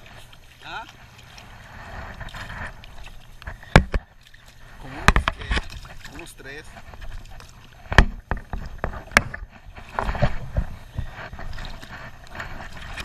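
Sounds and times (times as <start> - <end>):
fish splashing and flapping: 0.0 - 13.0
sharp knocks and slaps: 3.7 - 4.0, 7.9 - 9.4.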